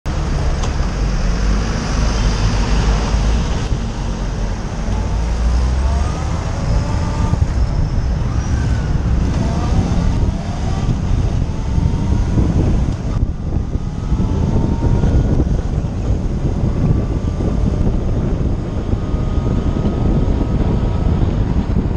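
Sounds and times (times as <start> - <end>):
motorcycle engine accelerating: 0.1 - 21.9
wind and road noise: 0.1 - 21.9.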